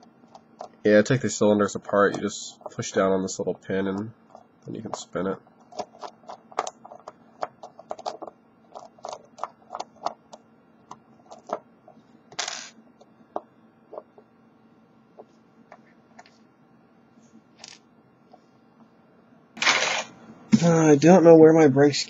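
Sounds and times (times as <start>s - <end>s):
small parts scraping on table: 19.6s - 20.2s.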